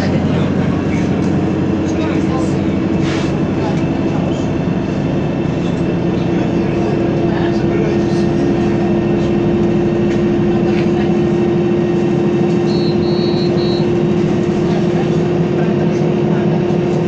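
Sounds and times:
bus engine and road noise: 0.0 - 17.0
short high beeps: 12.6 - 13.9.

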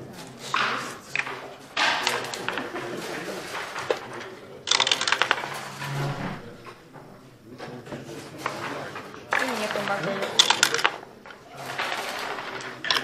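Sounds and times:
checkers sliding on board: 0.7 - 6.7, 9.3 - 13.0
dice and checkers clicking: 3.6 - 5.7, 9.3 - 13.0.

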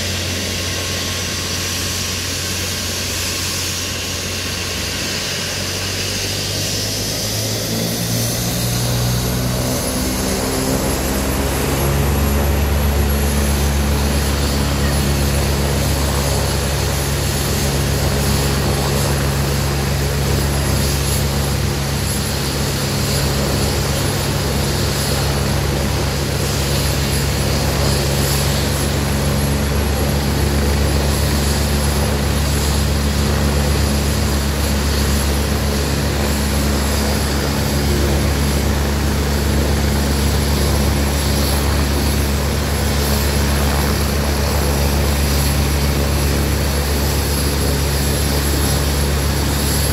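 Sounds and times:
helicopter engine whine: 0.0 - 49.9
helicopter rotor beat: 0.0 - 49.9.

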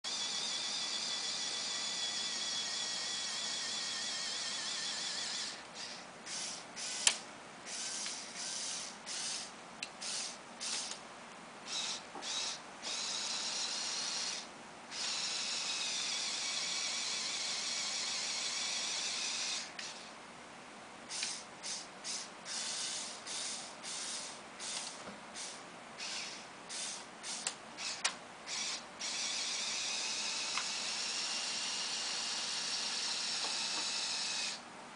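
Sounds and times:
electric motor whining through gearing: 0.1 - 11.0, 11.7 - 20.1, 21.1 - 34.6
sharp clicks: 7.0 - 7.2, 27.3 - 28.8.

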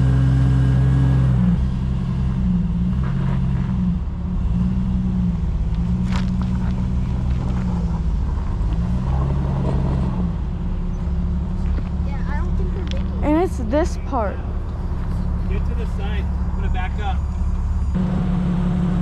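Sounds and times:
off-road vehicle engine revving: 0.0 - 19.0.

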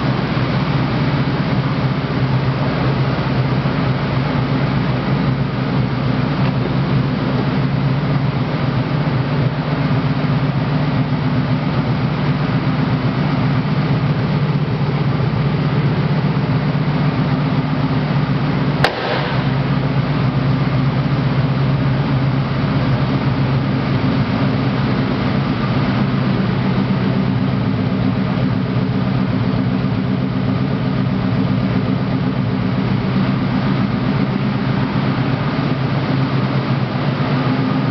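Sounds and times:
car engine idling: 0.0 - 37.9
sharp click: 18.8 - 19.6.

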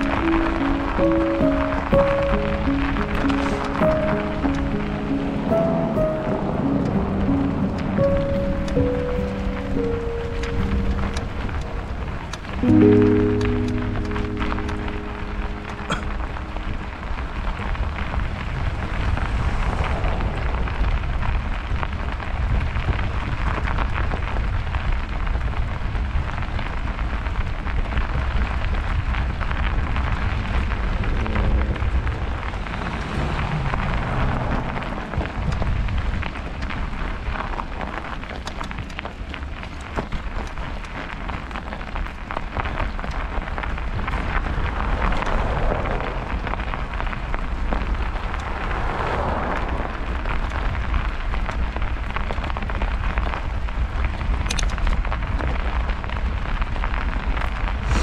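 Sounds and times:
tyres crackling on snow: 0.0 - 58.0
wind rumble on microphone: 0.0 - 58.0
small clicks: 54.4 - 55.5.

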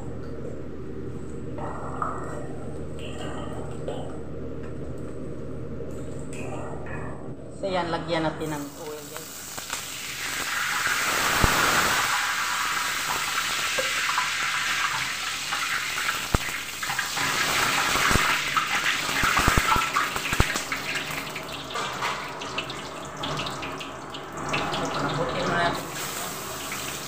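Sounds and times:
hot oil sizzling in wok: 8.6 - 23.8, 24.4 - 27.0.

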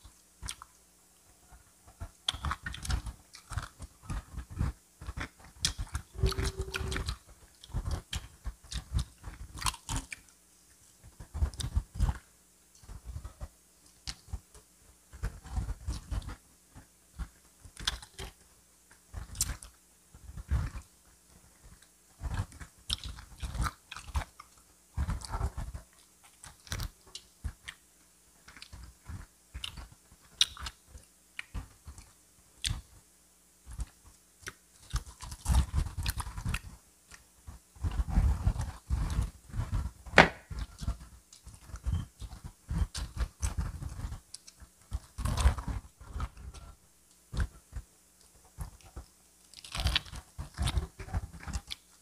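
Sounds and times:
crunchy biting and chewing: 2.3 - 10.3, 17.8 - 18.4, 22.2 - 27.8, 33.7 - 37.2, 37.8 - 46.6, 48.6 - 52.0.

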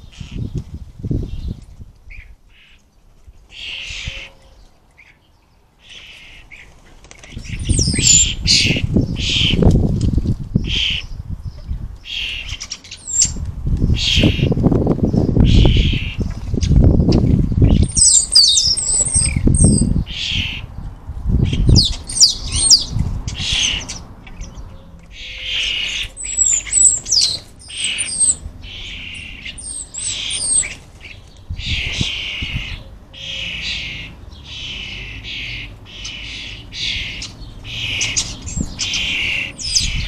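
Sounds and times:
fledglings rasping begging calls: 0.0 - 0.6, 3.5 - 5.2, 5.8 - 11.2, 12.0 - 20.7, 21.4 - 40.0
wing flutters: 6.6 - 8.0.

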